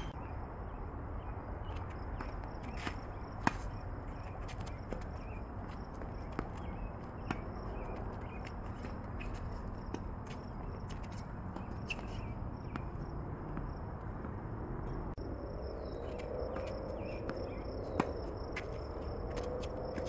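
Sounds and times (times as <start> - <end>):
tennis ball bounces: 2.0 - 15.2, 16.6 - 20.0
footsteps tapping: 2.2 - 14.4
high insect trill: 14.9 - 20.0.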